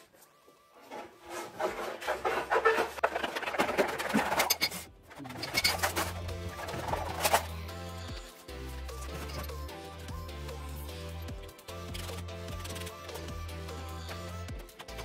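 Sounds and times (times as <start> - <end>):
background music with bass line: 5.0 - 15.0.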